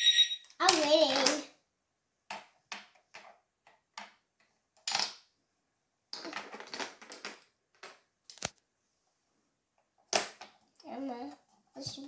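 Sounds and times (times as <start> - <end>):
wooden toy pieces clattering: 0.4 - 1.4, 4.8 - 5.2, 6.1 - 8.4
wooden pieces rattling: 6.1 - 8.4.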